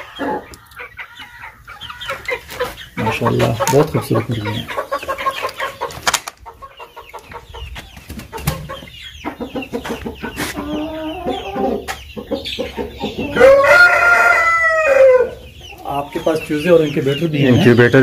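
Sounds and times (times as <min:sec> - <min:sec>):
chickens clucking: 0:00.0 - 0:18.0
rooster crowing: 0:13.2 - 0:15.4.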